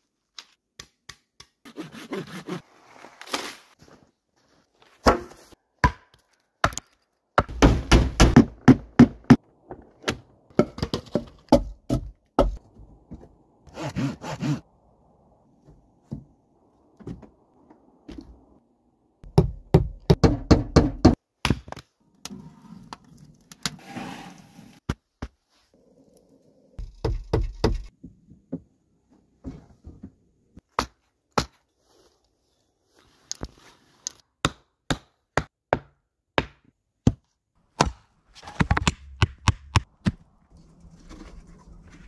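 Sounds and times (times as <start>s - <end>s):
wood knocks and thunks: 7.4s - 13.4s.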